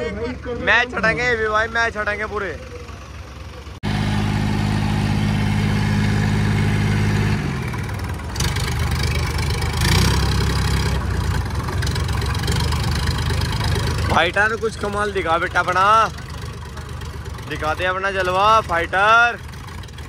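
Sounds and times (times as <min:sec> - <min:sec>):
tractor diesel engines revving: 0:00.0 - 0:20.0.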